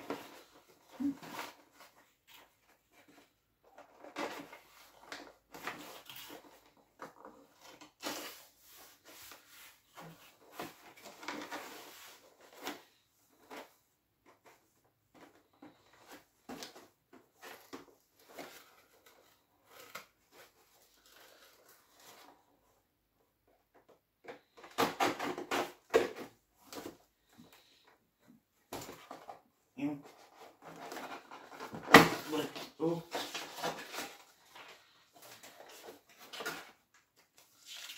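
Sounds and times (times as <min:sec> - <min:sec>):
packaging rustling and scraping: 0:00.0 - 0:22.8, 0:23.8 - 0:37.9.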